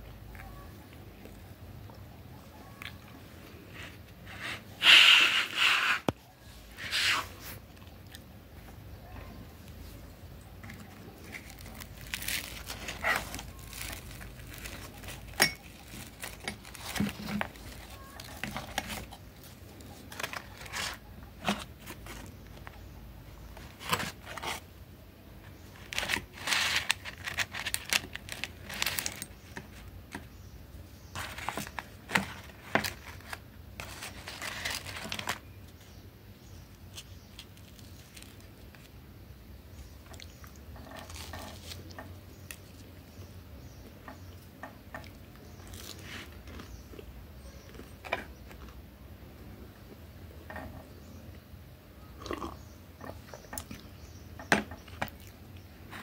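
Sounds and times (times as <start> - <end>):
plastic bag crinkling: 10.6 - 22.3, 25.6 - 29.9, 31.1 - 35.8.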